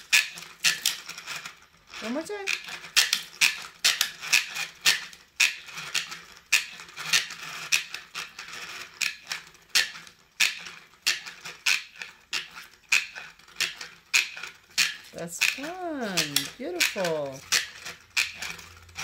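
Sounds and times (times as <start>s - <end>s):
light plastic rattle: 0.0s - 19.0s
spin toy clicking: 0.0s - 19.0s.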